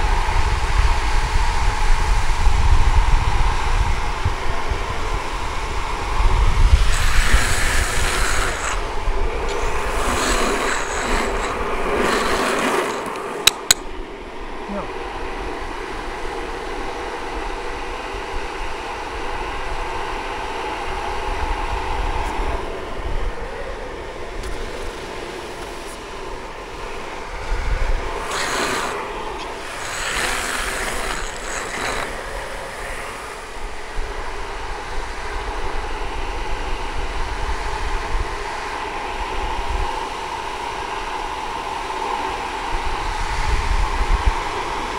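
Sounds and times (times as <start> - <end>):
longboard wheels rolling on asphalt: 0.0 - 44.9
wind rush: 0.0 - 44.9
hand scraping on road: 6.7 - 13.8, 28.0 - 33.4.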